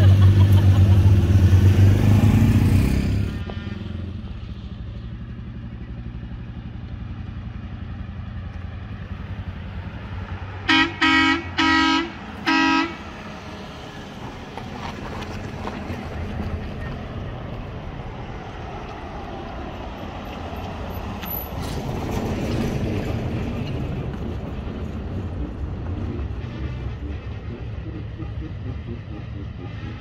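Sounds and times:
vehicle engine running: 0:00.0 - 0:19.7, 0:23.0 - 0:30.0
vehicle horn honking: 0:10.7 - 0:13.1.

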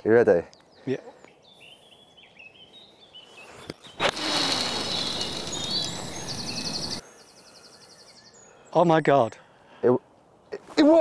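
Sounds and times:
fishing reel whirring: 0:04.0 - 0:07.0.

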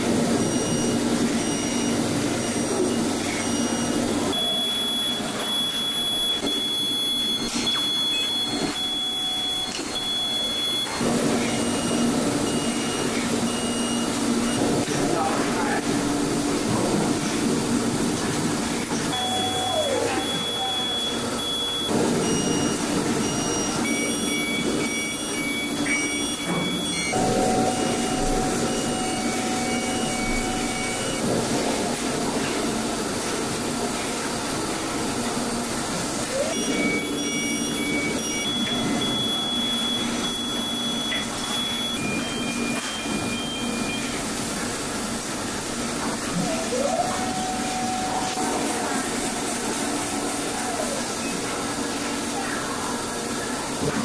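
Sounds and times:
machinery whirring hum: 0:00.0 - 0:54.0
high electronic beeps: 0:03.3 - 0:14.6, 0:19.1 - 0:31.2, 0:36.4 - 0:44.2.

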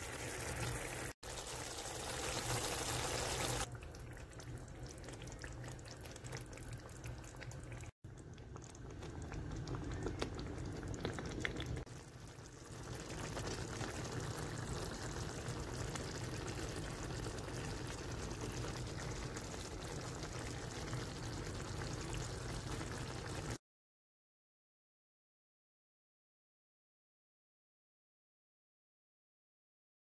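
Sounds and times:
curry bubbling in a pan: 0:00.0 - 0:23.6.

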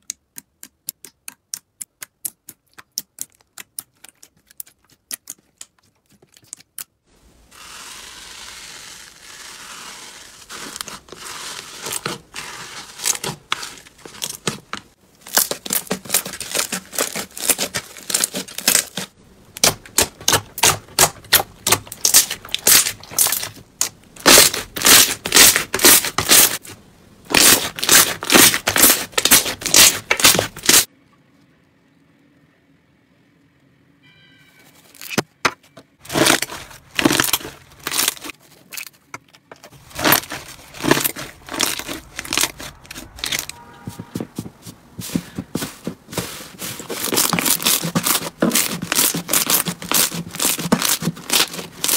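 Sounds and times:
slime crackling and popping: 0:15.3 - 0:26.7, 0:27.3 - 0:30.9, 0:36.0 - 0:39.0, 0:39.8 - 0:43.5, 0:47.0 - 0:51.9.

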